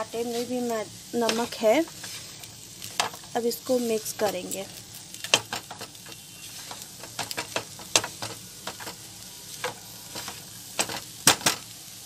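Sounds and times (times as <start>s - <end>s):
onions sizzling in wok: 0.0s - 12.0s
spatula scraping and knocking pan: 5.3s - 9.0s.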